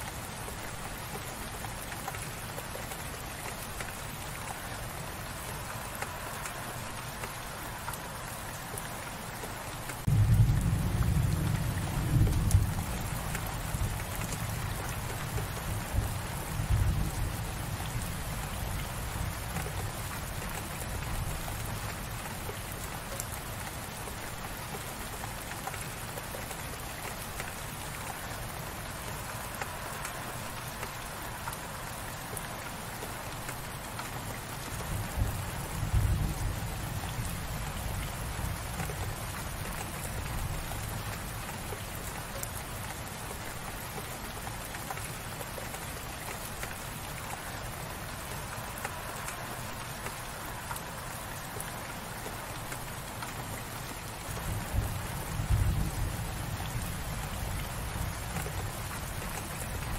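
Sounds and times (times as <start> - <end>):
light rain pattering: 0.0 - 59.9.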